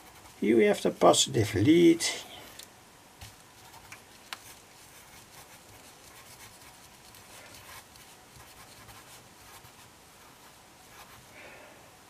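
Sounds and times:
pencil scratching on paper: 0:00.0 - 0:00.5, 0:03.6 - 0:11.2.

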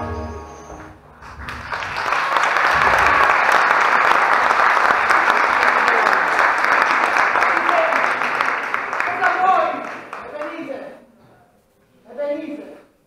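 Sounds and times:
audience applauding: 0:01.1 - 0:10.9.

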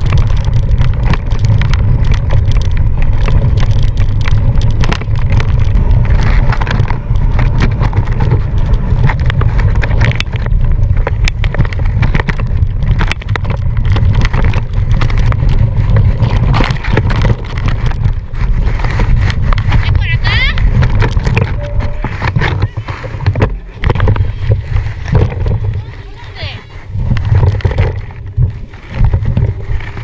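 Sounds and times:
mountain bike rattling: 0:00.0 - 0:30.0
wind buffeting microphone: 0:00.0 - 0:30.0.

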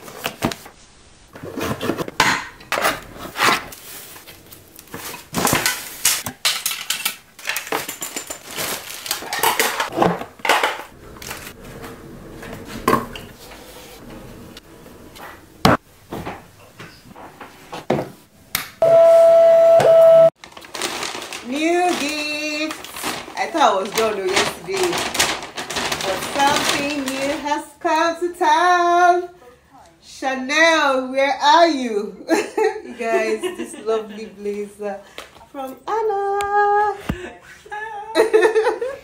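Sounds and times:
cardboard and plastic rustling: 0:00.0 - 0:13.4, 0:20.4 - 0:27.7.

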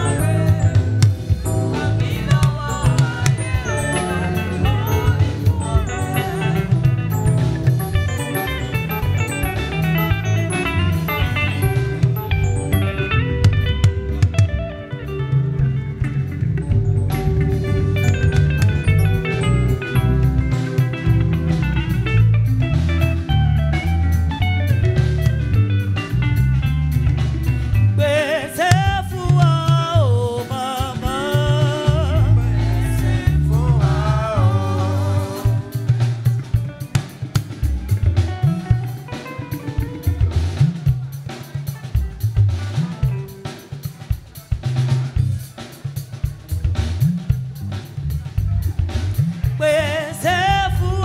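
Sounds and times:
person singing: 0:00.0 - 0:07.5, 0:28.0 - 0:36.3, 0:49.5 - 0:51.0
bass guitar: 0:00.0 - 0:51.0
drum kit: 0:00.0 - 0:51.0
electric guitar: 0:00.0 - 0:51.0.

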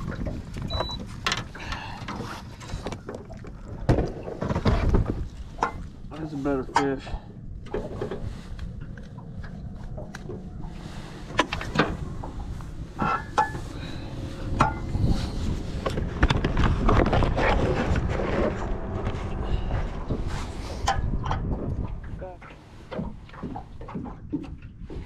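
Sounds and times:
steady low rumble: 0:03.3 - 0:25.0
knocks and clicks on boat deck: 0:20.1 - 0:25.0.

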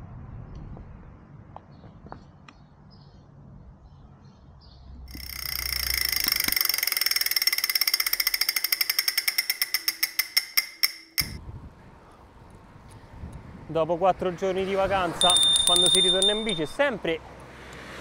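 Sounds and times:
metallic ratcheting ticks: 0:05.1 - 0:11.4, 0:15.2 - 0:16.8.

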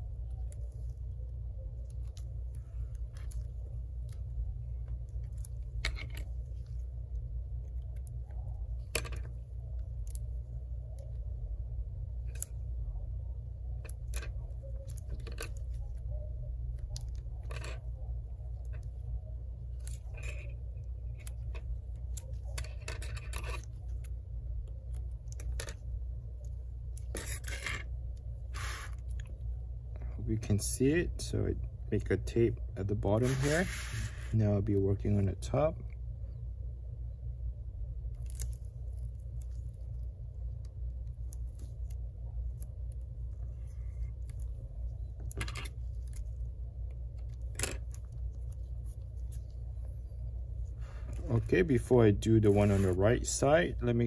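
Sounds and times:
steady low hum: 0:00.0 - 0:54.0
tape peeling and pressing: 0:26.4 - 0:29.4.

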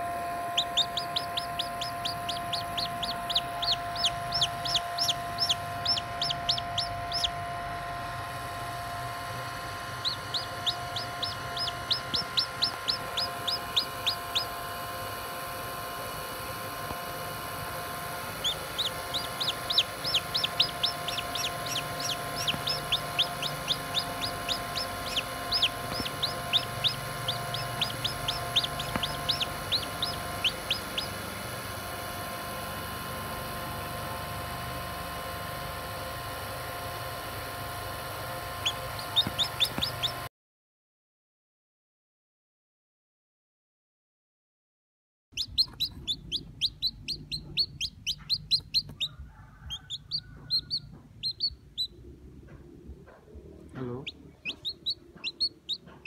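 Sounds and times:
chick peeping: 0:00.4 - 0:07.4, 0:09.5 - 0:14.6, 0:17.3 - 0:31.8, 0:38.5 - 0:40.3, 0:45.4 - 0:56.0.

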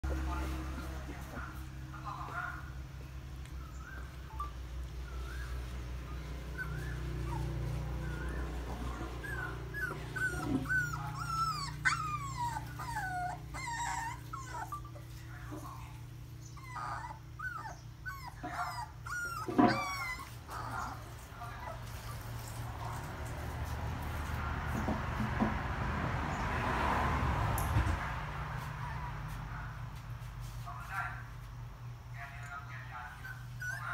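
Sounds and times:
puppies whimpering and crying: 0:03.5 - 0:23.1, 0:28.6 - 0:29.4, 0:33.0 - 0:33.9
puppy yelp: 0:03.7 - 0:15.2, 0:16.5 - 0:22.3, 0:33.2 - 0:33.9.

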